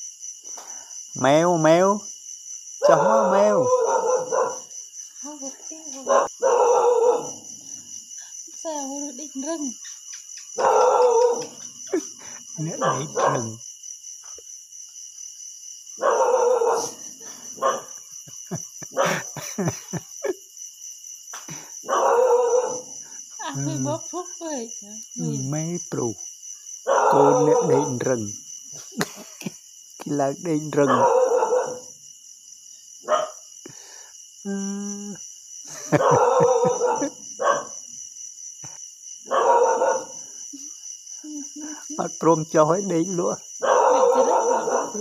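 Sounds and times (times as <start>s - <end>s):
crickets chirring: 0.0s - 45.0s
puppy barking: 2.8s - 4.7s, 6.0s - 7.4s, 10.6s - 12.0s, 12.6s - 13.6s, 16.0s - 17.0s, 17.6s - 18.0s, 18.9s - 19.4s, 21.8s - 23.0s, 26.9s - 28.1s, 30.8s - 31.9s, 33.0s - 33.4s, 35.8s - 37.8s, 39.3s - 40.3s, 43.6s - 45.0s.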